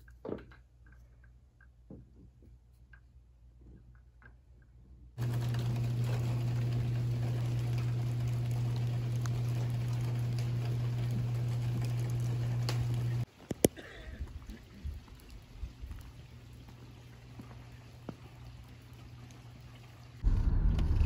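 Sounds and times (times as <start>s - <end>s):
sharp drips: 5.2s - 20.2s
rain pattering: 5.2s - 21.0s
loud low hum: 20.2s - 21.0s.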